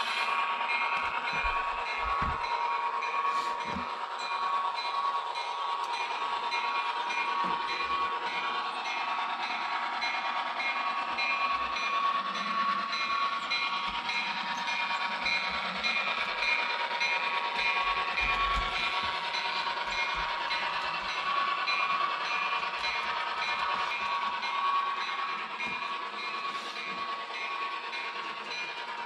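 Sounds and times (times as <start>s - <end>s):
model train motor whine: 0.0s - 29.0s.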